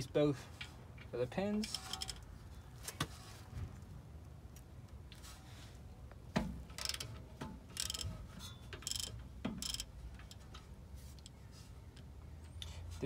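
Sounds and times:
ratchet wrench clicking: 0:06.7 - 0:07.1, 0:07.7 - 0:08.1, 0:08.8 - 0:10.4.

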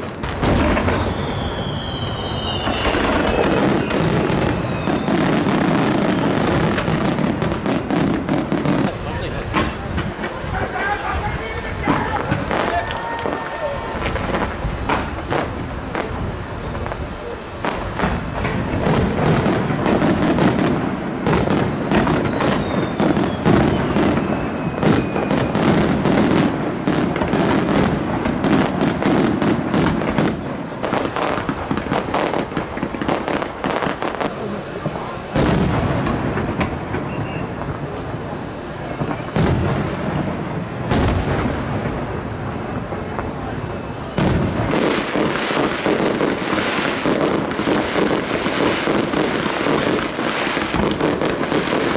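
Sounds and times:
fireworks bangs and crackles: 0:00.0 - 0:51.9.

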